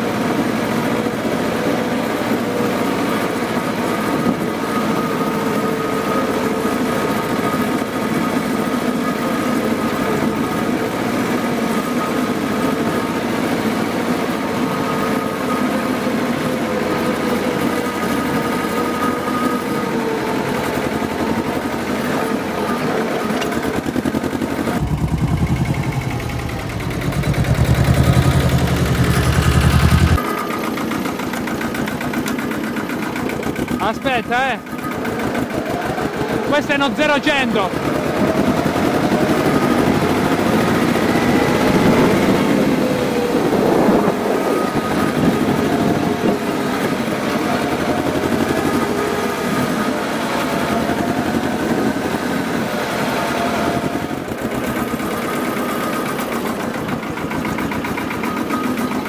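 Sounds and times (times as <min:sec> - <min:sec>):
tractor diesel engine running: 0:00.0 - 0:59.0
steady whine: 0:19.1 - 0:30.2.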